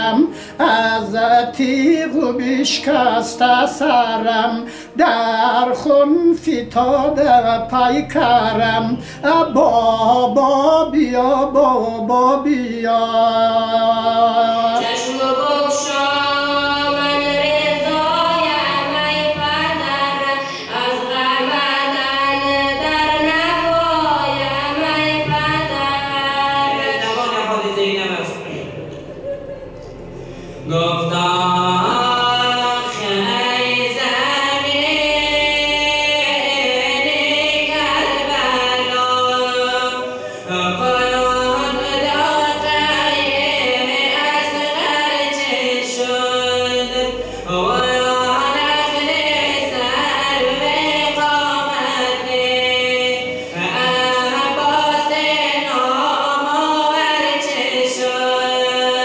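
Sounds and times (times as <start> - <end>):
man chanting a lament: 0.0 - 15.2.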